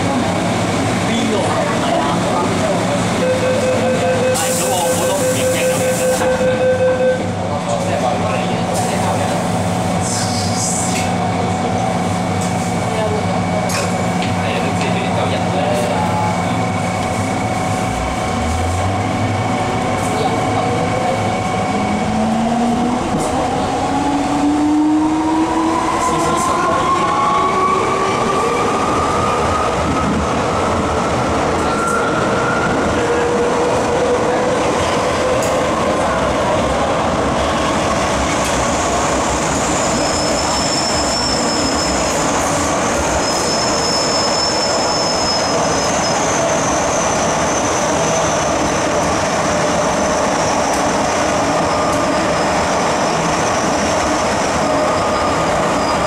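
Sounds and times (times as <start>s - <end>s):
high wheel squeal: 38.7s - 49.0s, 54.6s - 56.0s.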